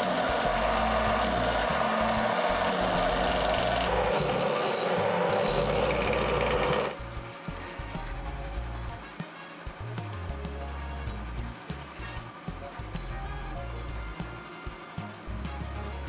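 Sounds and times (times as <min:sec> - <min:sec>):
drill press boring metal: 0:00.0 - 0:07.6.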